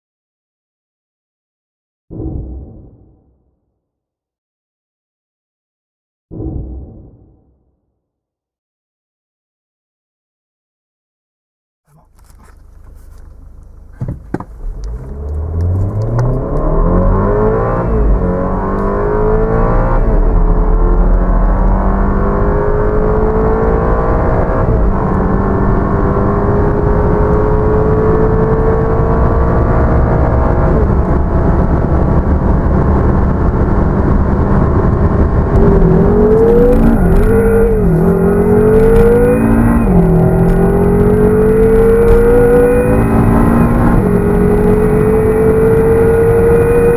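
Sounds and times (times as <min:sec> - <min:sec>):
car engine at full throttle: 0:11.9 - 0:46.9.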